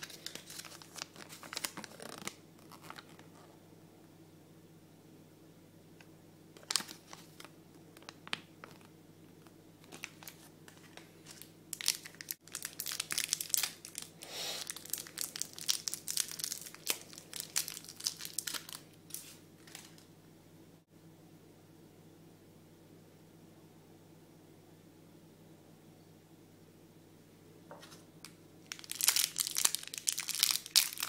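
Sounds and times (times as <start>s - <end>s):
plastic bag crinkling: 0.0s - 3.4s, 6.6s - 8.9s, 9.8s - 20.1s, 28.7s - 31.0s.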